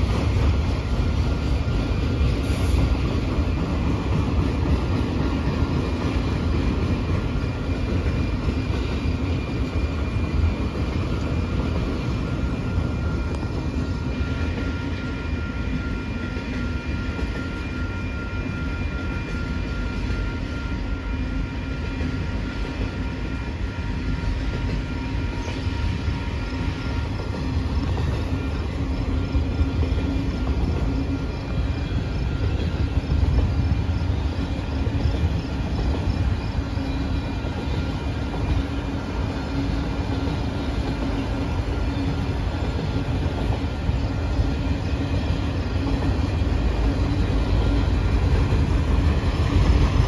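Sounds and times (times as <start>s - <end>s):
train wheels rumbling on rails: 0.0s - 50.0s.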